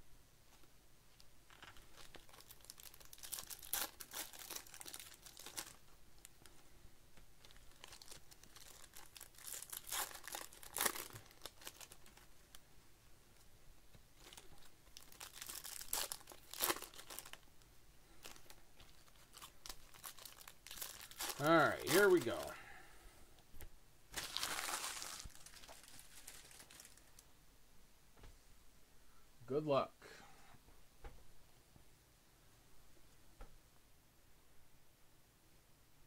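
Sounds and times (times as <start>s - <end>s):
plastic wrappers crinkling and tearing: 1.5s - 6.6s, 7.4s - 12.6s, 14.2s - 17.5s, 18.1s - 22.5s, 24.1s - 27.3s.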